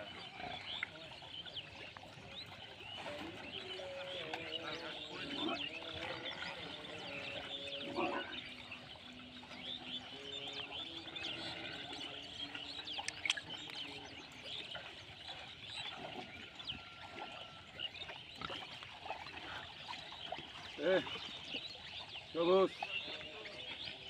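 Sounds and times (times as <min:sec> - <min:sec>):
small birds chirping: 0:00.0 - 0:24.0
pigs grunting: 0:03.5 - 0:08.8.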